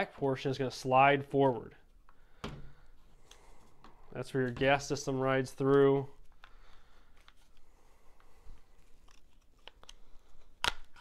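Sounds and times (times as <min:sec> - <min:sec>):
small clicks of polymer and metal: 0:09.0 - 0:11.0.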